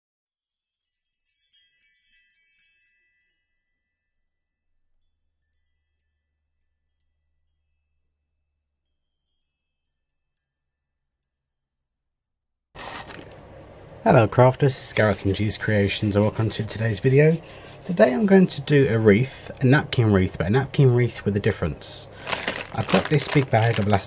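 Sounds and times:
high tinkling chimes: 0:00.3 - 0:11.9.

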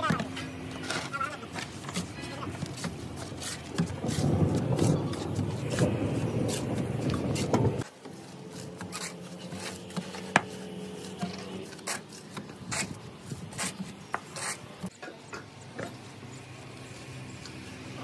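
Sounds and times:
trowels scraping mortar: 0:08.3 - 0:14.9.

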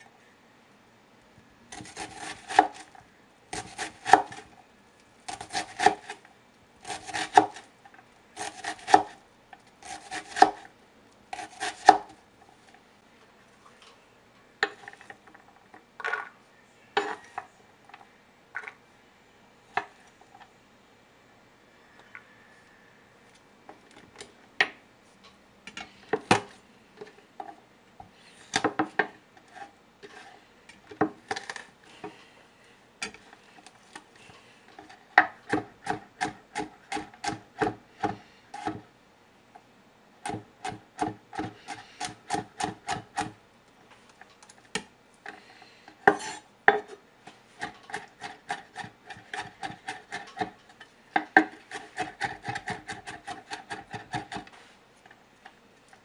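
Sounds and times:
knife chopping on wooden board: 0:01.8 - 0:02.8, 0:08.4 - 0:09.1, 0:09.8 - 0:10.6, 0:51.2 - 0:54.5.

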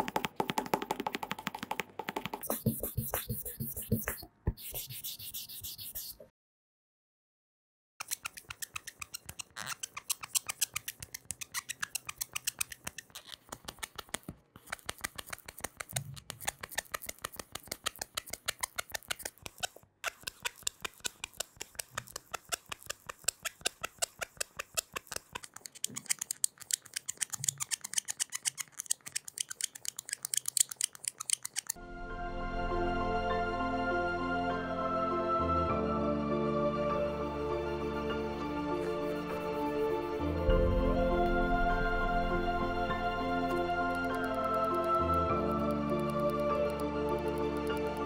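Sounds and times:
sanding sponge scrubbing stone: 0:02.4 - 0:06.2, 0:38.8 - 0:40.4.

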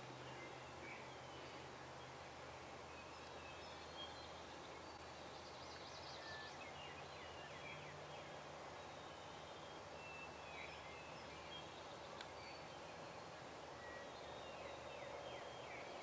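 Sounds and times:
faint birdsong: 0:00.0 - 0:16.0.

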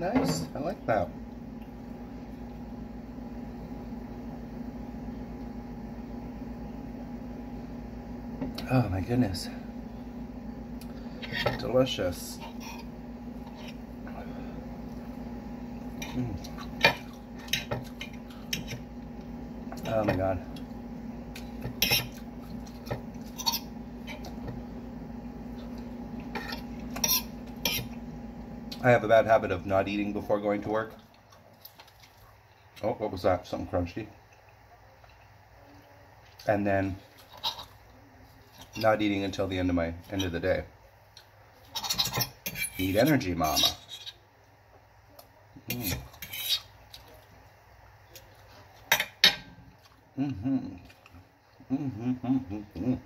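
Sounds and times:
low mechanical hum: 0:00.0 - 0:53.0
man chewing: 0:15.8 - 0:19.3, 0:46.0 - 0:47.4.

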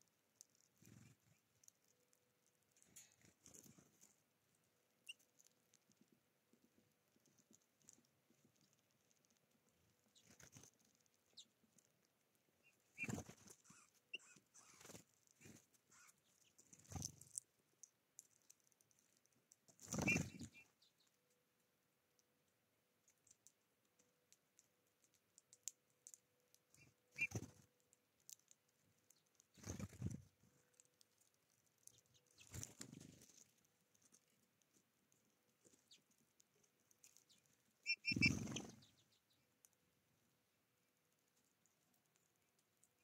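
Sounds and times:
birds scuffling among seeds: 0:00.0 - 0:21.2, 0:24.2 - 0:39.9
small birds fluttering wings: 0:10.0 - 0:11.4, 0:12.8 - 0:17.4, 0:19.7 - 0:20.8, 0:26.8 - 0:27.7, 0:29.5 - 0:30.5, 0:31.8 - 0:34.2, 0:37.0 - 0:39.3.

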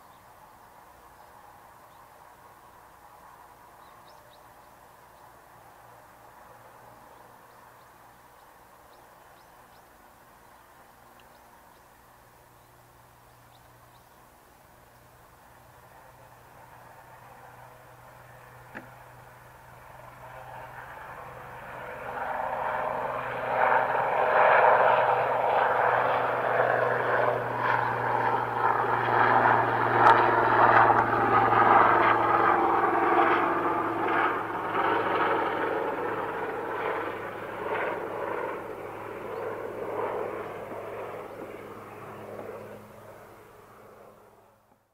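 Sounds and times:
helicopter rotors beating: 0:15.9 - 0:44.6.

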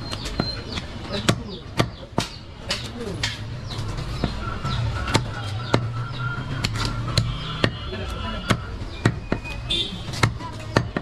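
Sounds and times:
knife chopping on wooden block: 0:00.1 - 0:03.4.

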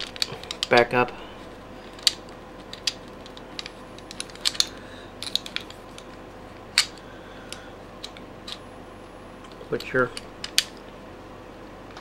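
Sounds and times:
metallic clicks of pistol parts: 0:01.9 - 0:06.1.

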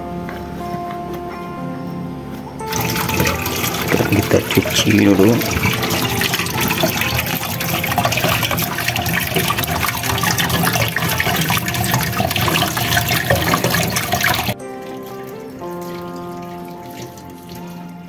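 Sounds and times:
quiet background music: 0:00.0 - 0:18.0
tap water running and splashing: 0:02.6 - 0:18.0
hands rubbing vegetable clean: 0:02.7 - 0:14.5.

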